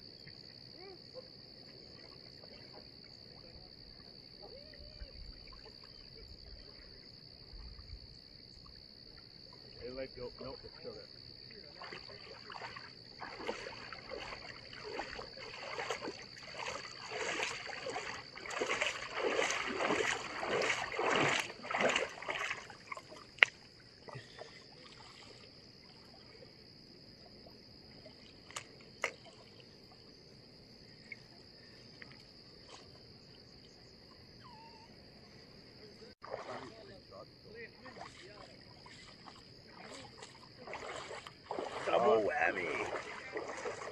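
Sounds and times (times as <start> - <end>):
fish splashing in water: 11.8 - 26.2, 36.2 - 36.9, 37.8 - 43.9.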